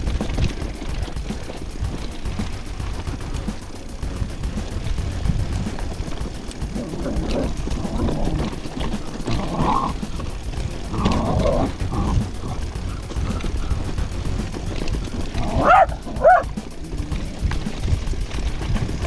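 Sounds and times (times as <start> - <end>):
bike tyres rolling on gravel: 0.0 - 19.0
wind: 0.0 - 19.0
dog barking: 15.4 - 16.5.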